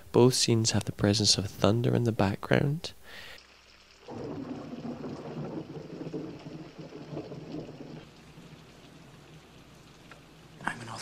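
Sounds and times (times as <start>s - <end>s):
steady rain: 3.0s - 11.0s
thunder rolling: 4.1s - 10.6s.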